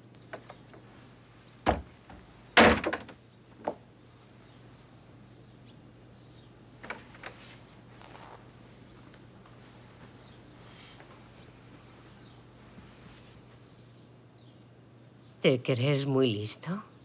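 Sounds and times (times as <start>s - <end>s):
wooden door knocking and rattling: 1.6s - 3.8s.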